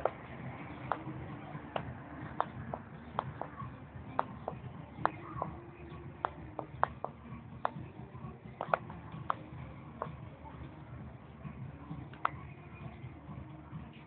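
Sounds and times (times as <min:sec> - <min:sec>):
low background rumble: 0:00.0 - 0:14.0
sharp clicks or taps: 0:08.6 - 0:09.4.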